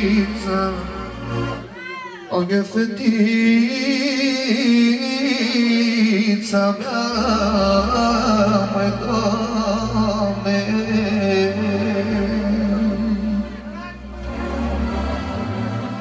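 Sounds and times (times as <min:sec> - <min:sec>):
man singing into microphone: 0:00.0 - 0:01.3, 0:02.2 - 0:14.2
amplified backing music: 0:00.0 - 0:16.0
deep bass notes: 0:07.0 - 0:16.0.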